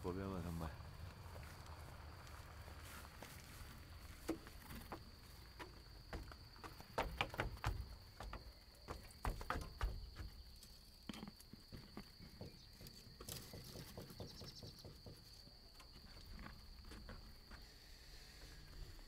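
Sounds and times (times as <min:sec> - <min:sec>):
wooden box knocking against wall: 0:04.3 - 0:10.4, 0:11.7 - 0:15.4.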